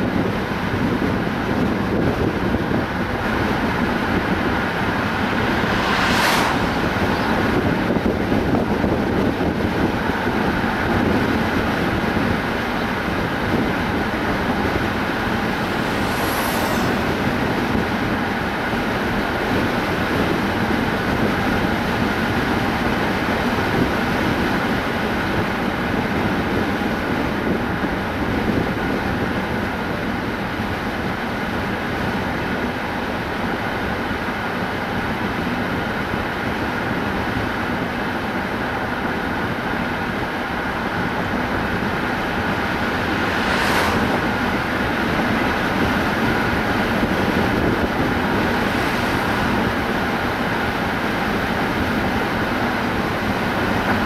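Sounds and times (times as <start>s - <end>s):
road and tyre noise: 0.0s - 54.0s
car engine hum: 0.1s - 27.4s, 33.7s - 54.0s
brief hiss: 4.6s - 7.9s, 14.9s - 18.1s, 42.6s - 45.6s.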